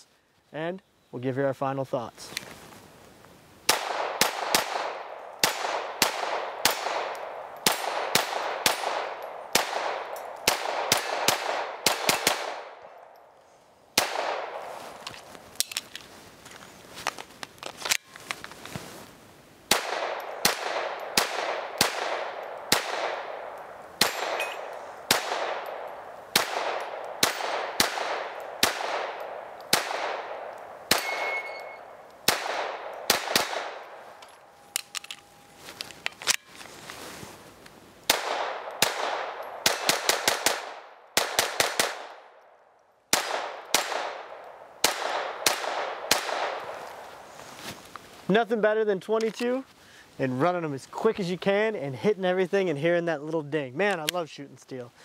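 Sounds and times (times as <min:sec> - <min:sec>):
pistol gunshots: 0:03.7 - 0:12.8, 0:14.0 - 0:14.6, 0:19.7 - 0:34.0, 0:38.1 - 0:42.4, 0:43.1 - 0:46.7
steel targets dinging: 0:30.9 - 0:32.0.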